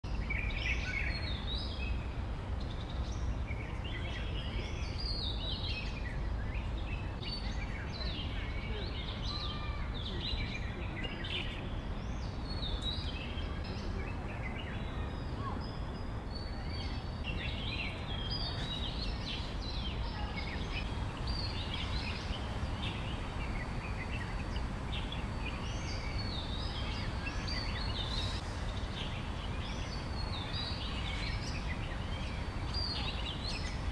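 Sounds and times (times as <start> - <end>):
birds chirping and calling: 2.6 - 33.9.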